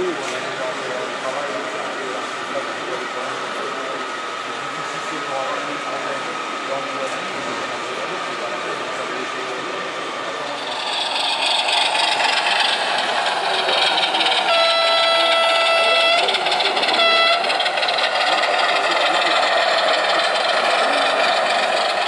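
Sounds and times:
running train rushing noise: 0.0s - 22.0s
model train horn blasts: 14.5s - 17.6s.

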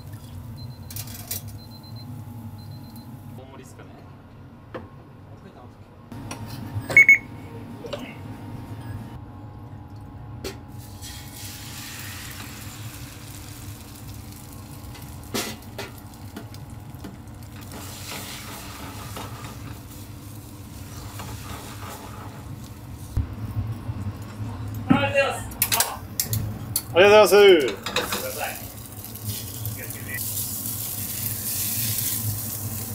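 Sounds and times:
egg sizzling in a pan: 10.8s - 23.2s, 28.1s - 32.9s.

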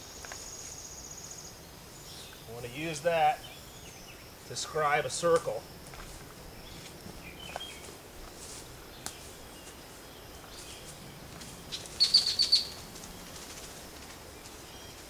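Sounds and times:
bird chirping: 0.0s - 5.3s, 6.5s - 7.9s, 8.8s - 13.3s
faint outdoor background: 0.0s - 15.0s.

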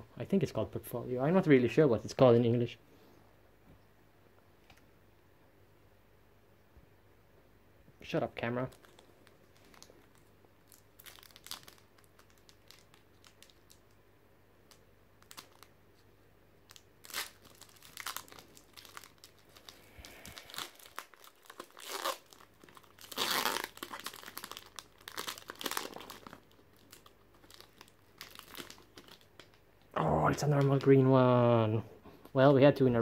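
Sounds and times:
foil wrapper crinkling and tearing: 8.7s - 13.9s, 14.7s - 15.7s, 16.7s - 29.6s.

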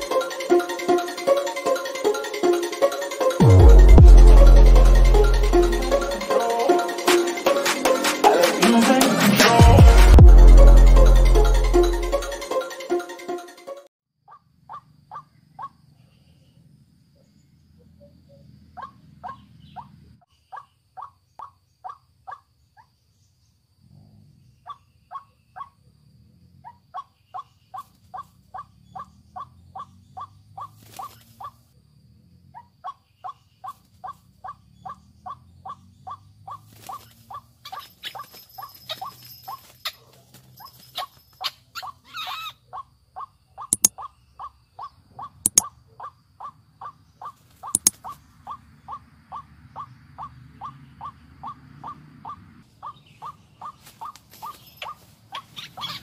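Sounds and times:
bird croaking calls: 14.3s - 16.6s, 17.3s - 22.9s, 26.6s - 31.6s, 32.5s - 39.2s, 41.0s - 56.0s
sharp clicks: 47.8s - 48.0s.

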